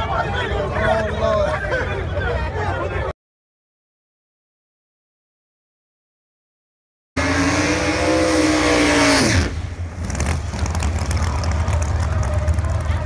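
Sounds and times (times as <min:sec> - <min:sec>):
drag racing engines roaring: 0:07.2 - 0:13.0
heavy rumble: 0:09.3 - 0:13.0.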